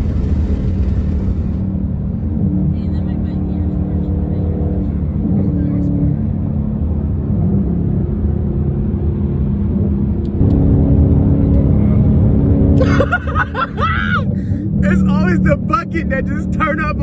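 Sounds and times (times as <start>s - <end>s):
car engine running: 0.0s - 17.0s.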